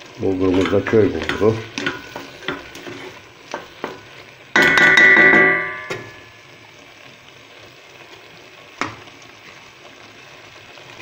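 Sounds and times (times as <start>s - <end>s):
vegetables sizzling in metal pot: 0.0s - 11.0s.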